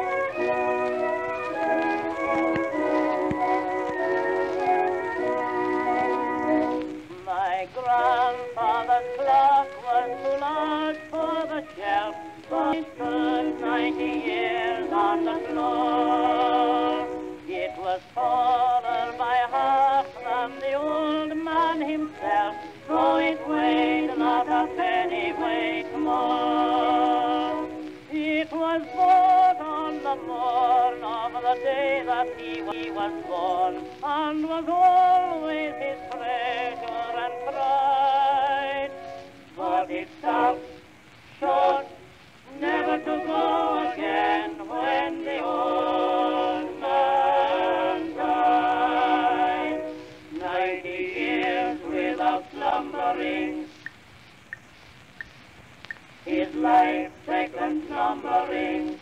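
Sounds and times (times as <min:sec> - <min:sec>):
instrumental music with vibrato lead: 0:00.0 - 0:07.1.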